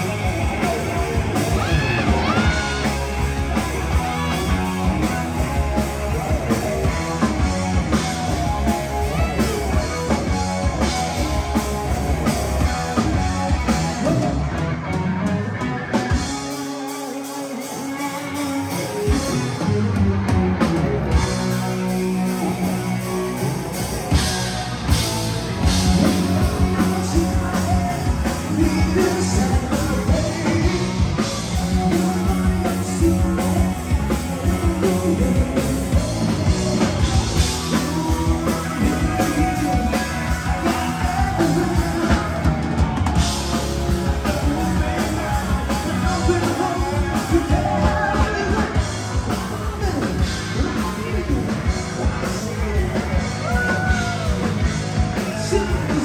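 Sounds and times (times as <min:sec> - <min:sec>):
rock band playing live: 0:00.0 - 0:56.0
person singing: 0:25.6 - 0:56.0.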